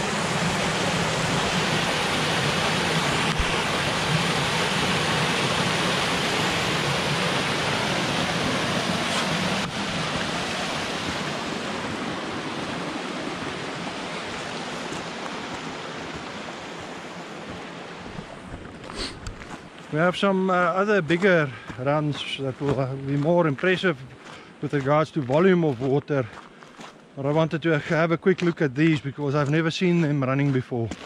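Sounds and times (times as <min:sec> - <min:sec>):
flood water rushing over rocks: 0:00.0 - 0:24.8.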